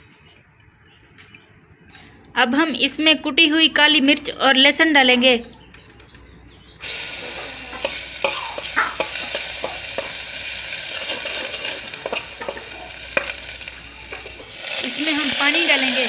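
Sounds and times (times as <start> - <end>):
spices sizzling in hot fat: 6.8 - 16.0
spoon scraping metal pot: 10.9 - 13.4.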